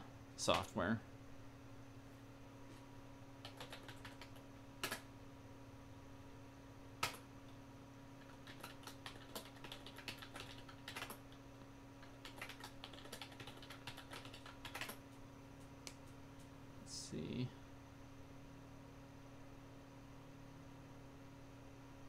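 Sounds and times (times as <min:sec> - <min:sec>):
low electrical hum: 0:00.0 - 0:22.0
computer keyboard typing: 0:03.4 - 0:05.1, 0:07.0 - 0:07.2, 0:08.2 - 0:11.4, 0:12.0 - 0:16.5.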